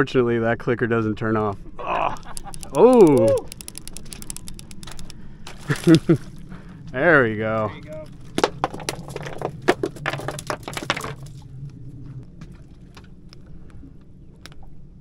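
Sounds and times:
fishing reel clicker ticking: 2.2 - 5.2.

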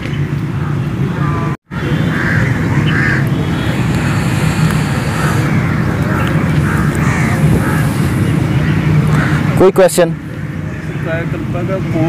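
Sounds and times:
traffic rumble: 1.8 - 10.8
crows cawing: 6.6 - 9.4.

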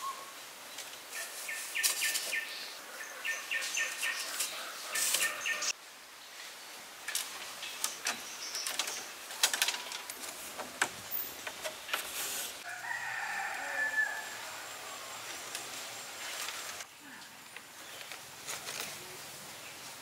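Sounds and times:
rooster crowing: 12.6 - 15.2.

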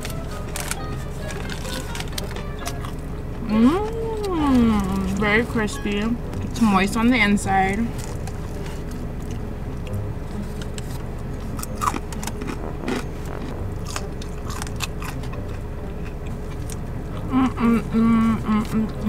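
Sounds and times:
chewing crispy chicken wings: 0.0 - 3.0, 7.9 - 19.0
low hum: 0.0 - 19.0.

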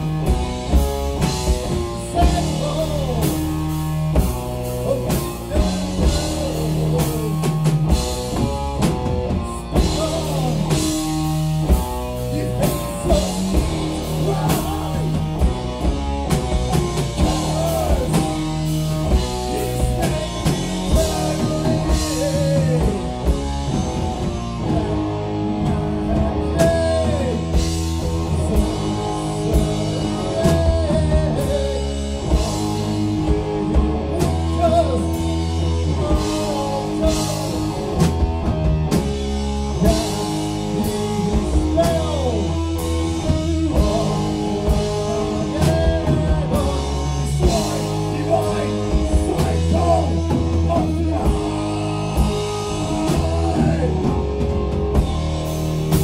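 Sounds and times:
distorted electric guitars: 0.0 - 56.0
drum kit pounding: 0.0 - 56.0.

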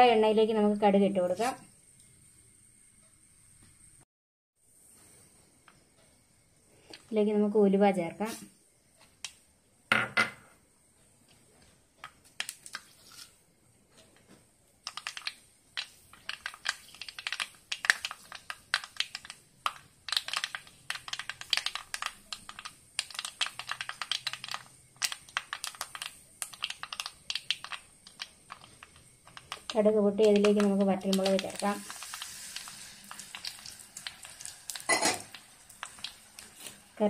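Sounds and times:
mustard seeds popping in hot oil: 8.2 - 13.2, 14.0 - 37.0.

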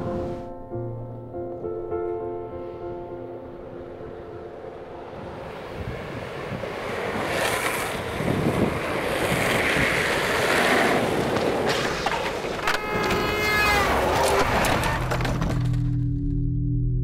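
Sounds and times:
wheels rolling on asphalt: 4.4 - 15.8
wind rushing over microphone: 5.1 - 11.7.

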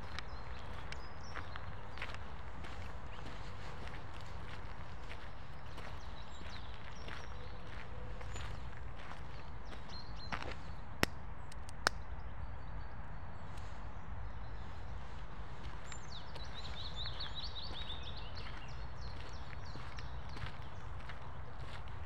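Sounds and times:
footsteps on dirt path: 0.0 - 10.8, 14.9 - 22.0
sharp clicks: 11.0 - 12.1.

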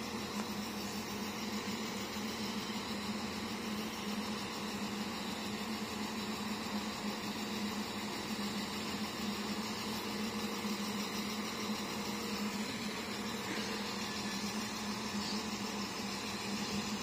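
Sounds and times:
diesel train engine idling: 9.6 - 17.0.

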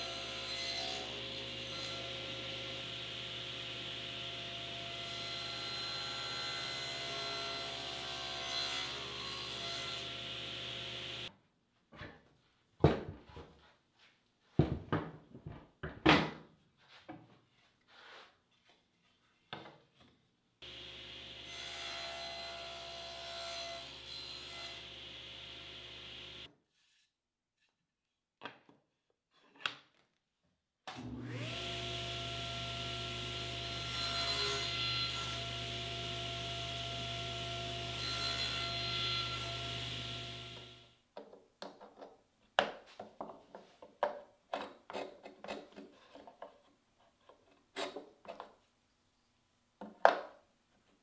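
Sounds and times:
table saw running: 0.1 - 11.3, 20.6 - 26.5, 31.0 - 40.9.

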